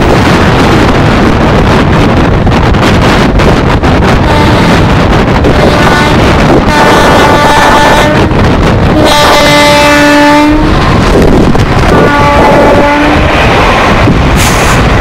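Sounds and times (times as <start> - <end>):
passing train: 0.0 - 15.0
wind and train running noise: 0.0 - 15.0
locomotive horn blasts: 4.2 - 4.9, 5.5 - 11.0, 11.9 - 13.4.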